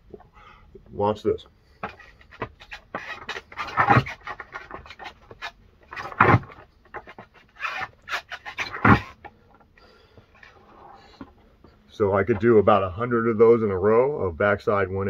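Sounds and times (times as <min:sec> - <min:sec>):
shoes shuffling and scraping: 0:01.8 - 0:09.3.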